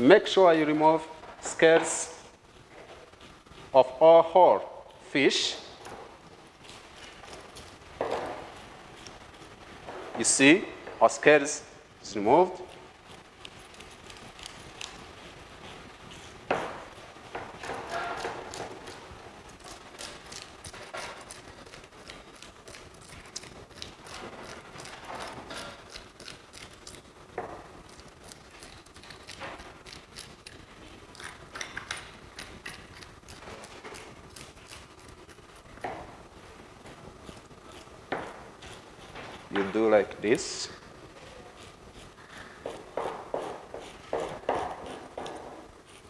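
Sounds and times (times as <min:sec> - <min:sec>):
knife scraping fish scales: 0:17.6 - 0:27.0.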